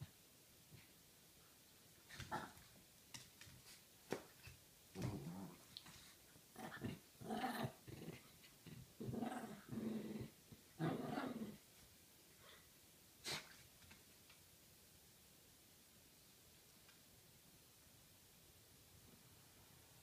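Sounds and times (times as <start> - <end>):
small dogs play-growling: 2.1 - 2.8, 4.9 - 11.7.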